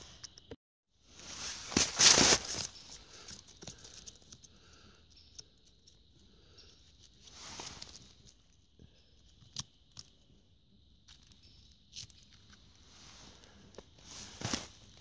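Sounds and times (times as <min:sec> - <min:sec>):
handling rustle: 0:01.1 - 0:04.4, 0:07.0 - 0:08.6, 0:11.1 - 0:15.0.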